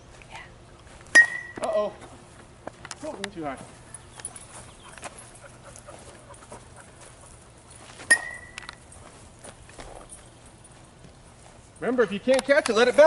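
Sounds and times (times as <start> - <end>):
bat hitting baseball: 1.1 - 1.8, 8.1 - 8.6.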